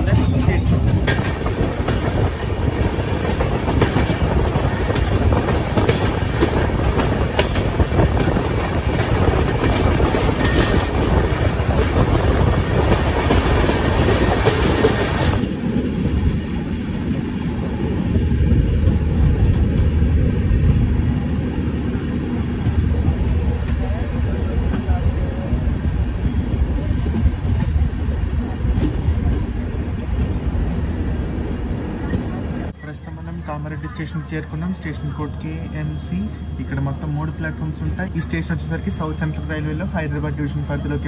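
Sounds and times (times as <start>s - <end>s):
wheels clicking over rail joints: 0.0s - 15.4s
train rumble and rattle: 0.0s - 41.0s.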